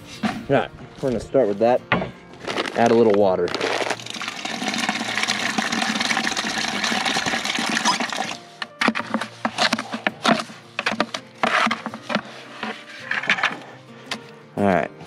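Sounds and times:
shovel scraping mortar in bucket: 0:02.4 - 0:13.8
water running into plastic bucket: 0:02.5 - 0:12.2.

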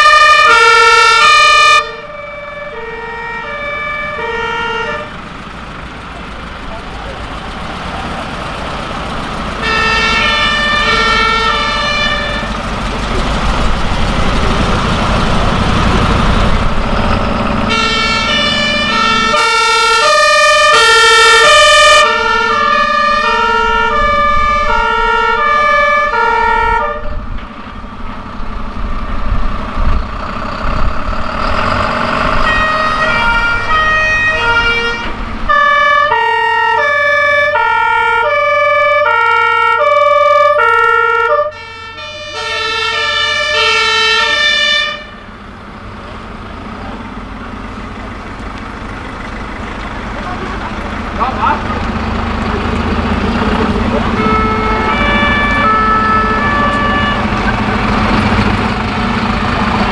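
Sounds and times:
two-tone sirens: 0:00.0 - 0:28.1, 0:31.4 - 0:59.9
truck engines rumbling: 0:00.0 - 0:59.9.

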